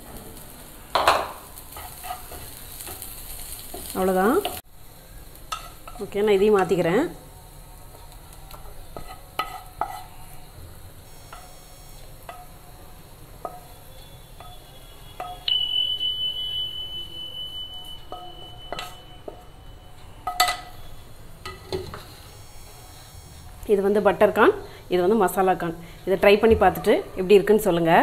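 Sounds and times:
steady high tone: 0:14.7 - 0:21.1.

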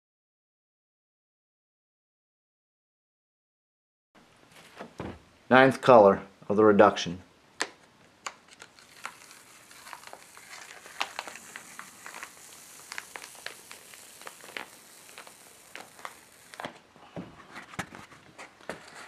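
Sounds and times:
paper peeling off inked block: 0:08.5 - 0:16.8.

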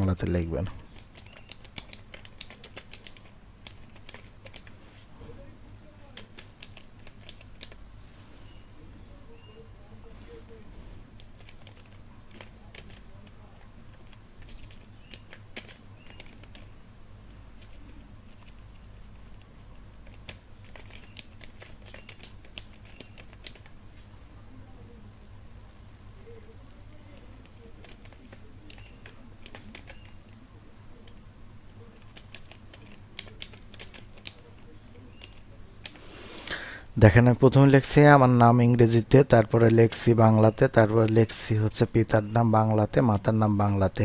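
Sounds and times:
low steady hum: 0:00.0 - 0:44.0
keyboard keystroke clicks: 0:00.9 - 0:05.0, 0:06.0 - 0:08.4, 0:11.2 - 0:31.3, 0:32.0 - 0:36.0.

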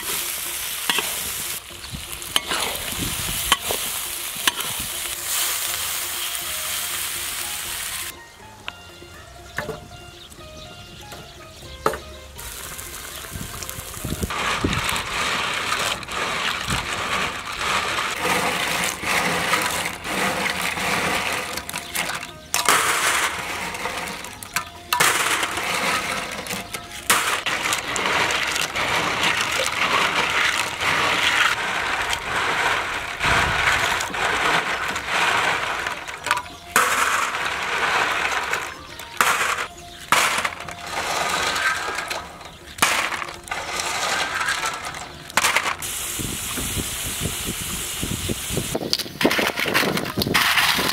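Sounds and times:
clam shells rattling in water: 0:12.6 - 0:45.9, 0:48.7 - 0:50.9
clams clattering into steel tray: 0:14.0 - 0:45.9, 0:48.8 - 0:50.9.

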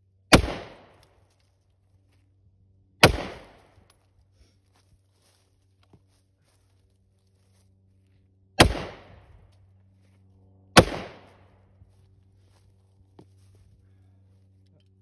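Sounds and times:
gunshots: 0:00.3 - 0:01.0, 0:03.0 - 0:03.7, 0:08.6 - 0:09.2, 0:10.8 - 0:11.4.

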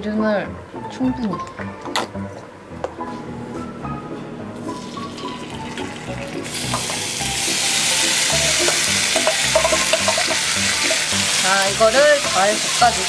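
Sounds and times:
food sizzling in a frying pan: 0:04.8 - 0:13.0.

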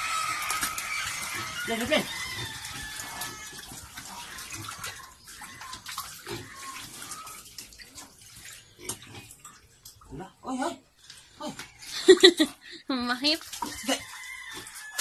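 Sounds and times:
piglets squeaking: 0:00.0 - 0:07.5
piglets splashing and clicking: 0:00.0 - 0:10.3, 0:10.9 - 0:15.0.

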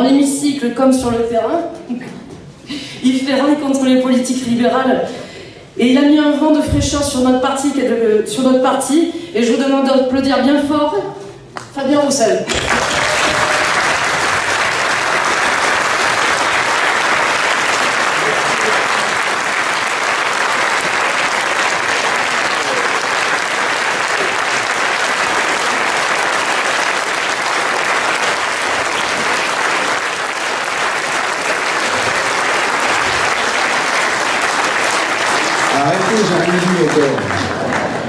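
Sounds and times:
crowd applauding: 0:12.5 - 0:38.0.

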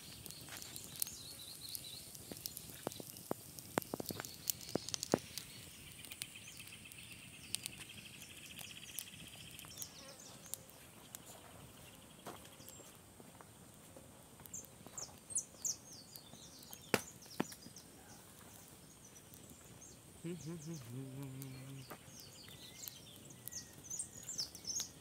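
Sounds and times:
campfire crackling and popping: 0:00.0 - 0:25.0
insect trilling: 0:20.2 - 0:22.0
faint high insect whine: 0:20.2 - 0:24.8.

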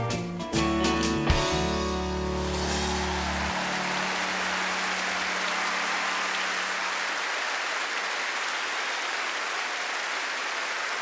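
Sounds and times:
large audience applauding: 0:02.1 - 0:11.0.

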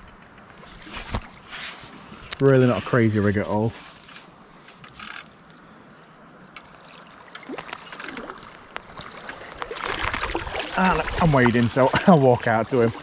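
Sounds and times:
river water trickling: 0:00.0 - 0:13.0
light splashes: 0:06.5 - 0:13.0.

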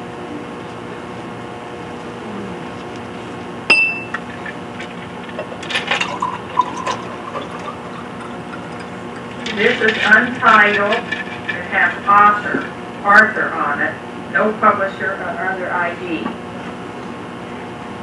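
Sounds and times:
steady hum: 0:00.0 - 0:18.0
sharp ringing clink: 0:03.7 - 0:04.2.

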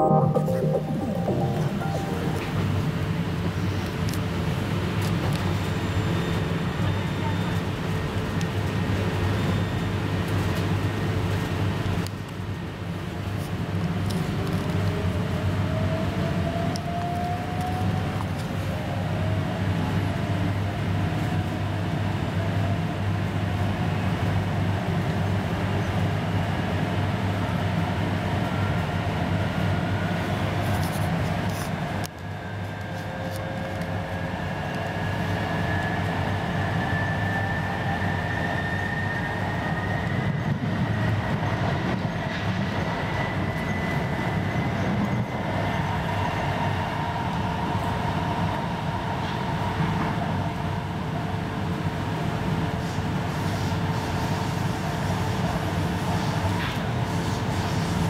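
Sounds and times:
train whine rising in pitch: 0:00.0 - 0:03.2, 0:32.4 - 0:42.1
electric train interior rumble: 0:00.0 - 0:58.0.

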